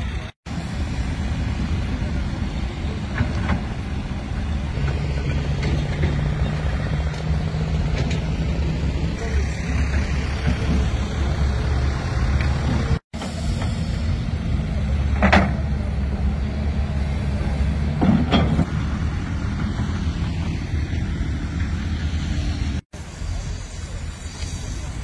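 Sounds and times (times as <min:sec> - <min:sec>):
vehicle rumble from on board: 0:00.1 - 0:24.2.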